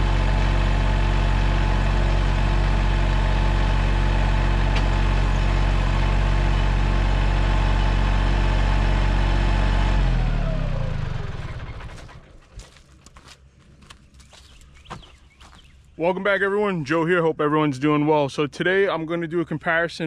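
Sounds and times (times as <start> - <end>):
diesel tractor engine idling: 0.0 - 18.0
footsteps: 11.4 - 15.9.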